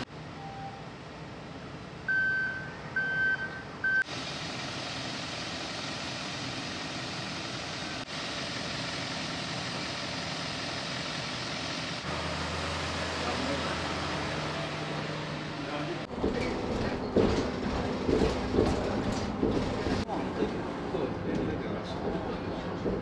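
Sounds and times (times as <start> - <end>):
short electronic beeps: 2.1 - 4.0.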